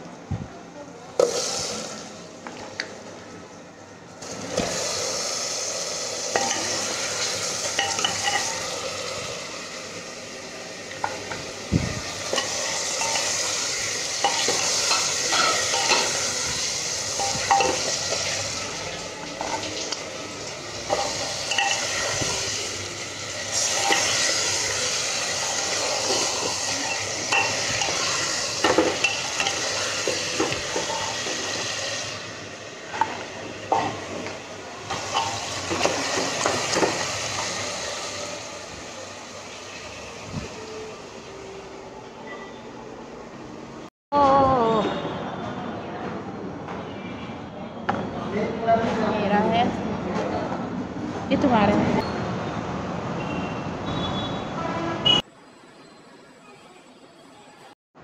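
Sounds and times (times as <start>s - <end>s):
chicken sizzling in hot oil: 4.2s - 41.8s
spoon stirring in pot: 20.9s - 22.2s.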